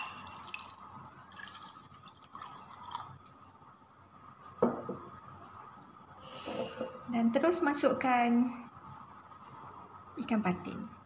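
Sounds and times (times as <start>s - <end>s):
water pouring into bowl: 0.0s - 3.4s.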